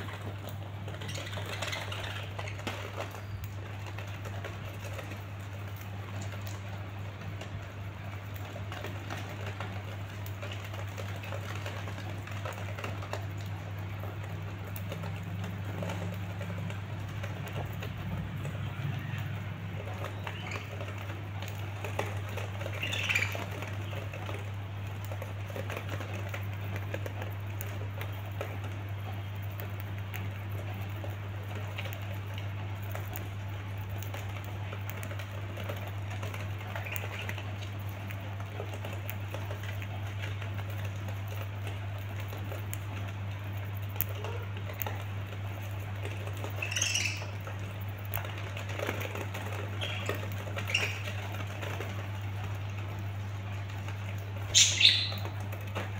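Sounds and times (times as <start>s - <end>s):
birds pecking at greens: 0.0s - 55.9s
bird chirps: 46.6s - 47.4s, 49.8s - 51.2s, 54.5s - 55.4s.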